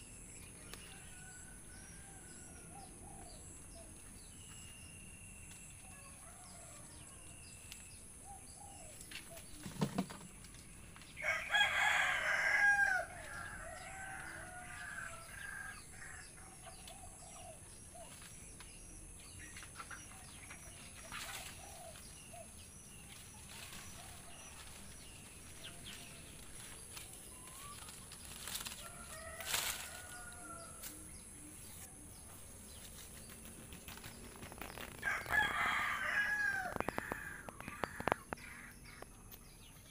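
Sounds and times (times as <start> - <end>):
rooster crowing: 11.2 - 16.0, 28.8 - 30.8, 35.0 - 37.5
chickens calling: 33.9 - 39.1.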